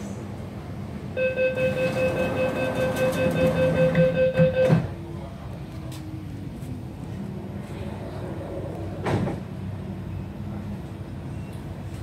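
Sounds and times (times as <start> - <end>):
rapid warning beeps: 1.2 - 4.8
sliding doors shutting with thud: 9.0 - 9.5.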